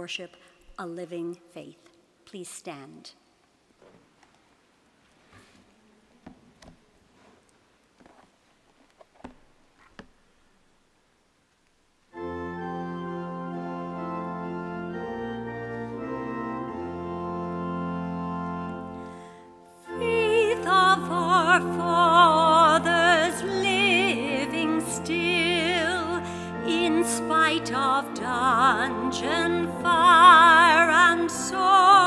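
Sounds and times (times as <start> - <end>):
church organ chords: 12.1 - 32.0
woman singing hymn with vibrato: 19.8 - 32.0.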